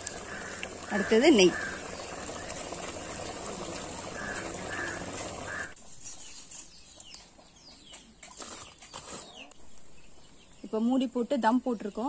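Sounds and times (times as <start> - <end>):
charcoal being raked: 8.3 - 9.5.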